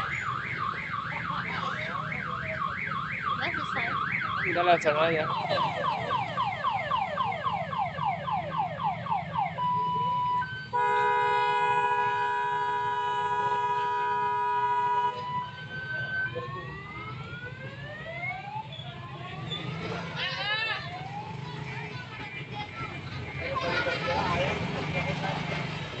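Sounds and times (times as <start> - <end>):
electronic vehicle siren: 0.0 - 24.3.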